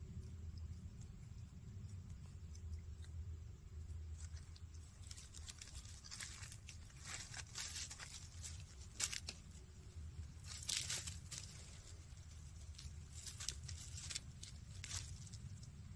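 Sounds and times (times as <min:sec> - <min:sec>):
dry leaves crackling and rustling: 0:04.2 - 0:15.9.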